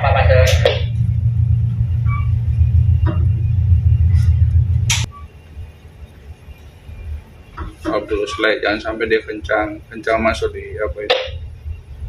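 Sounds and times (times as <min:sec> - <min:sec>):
diesel engines rumbling: 0:00.0 - 0:12.0
sharp click: 0:04.8 - 0:05.1.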